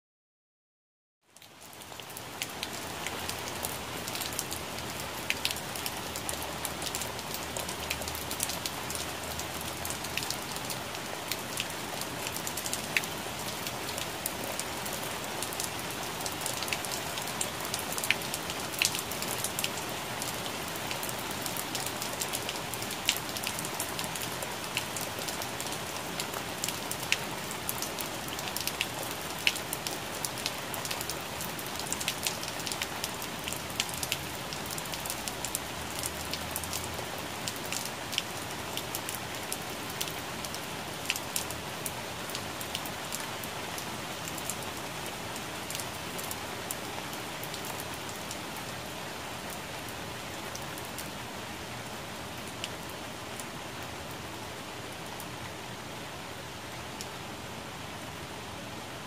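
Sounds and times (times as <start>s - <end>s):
rain falling on leaves: 1.2s - 59.0s.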